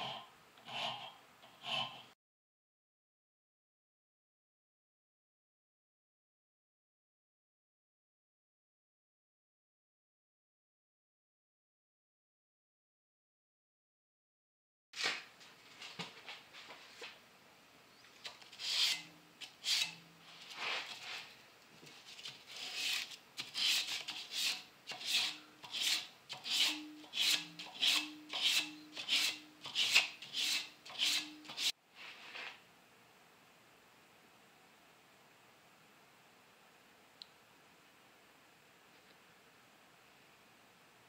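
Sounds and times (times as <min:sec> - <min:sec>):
sandpaper rasping on steel blade: 0:18.2 - 0:21.3, 0:22.2 - 0:31.7.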